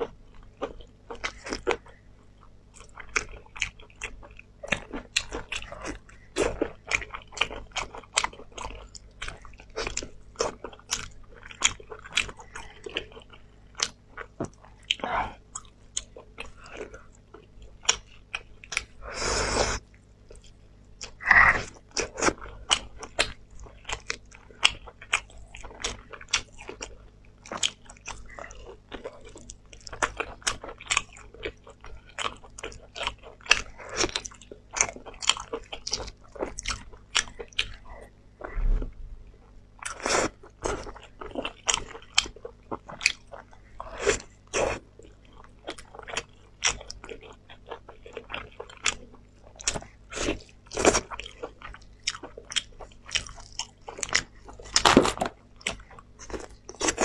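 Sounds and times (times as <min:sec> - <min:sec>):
wet biting and chewing: 0:39.8 - 0:57.0.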